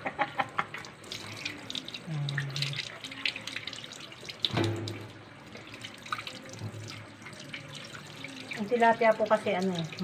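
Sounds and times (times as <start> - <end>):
tap running into steel sink: 4.4 - 5.2.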